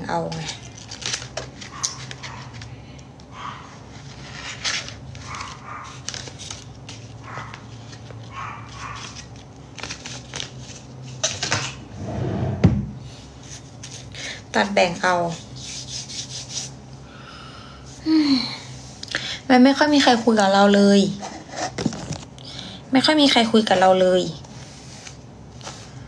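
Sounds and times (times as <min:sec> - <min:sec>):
plastic film crinkling: 0:00.0 - 0:02.8, 0:04.0 - 0:11.7
packaging rubbing: 0:00.5 - 0:02.7, 0:03.8 - 0:11.6.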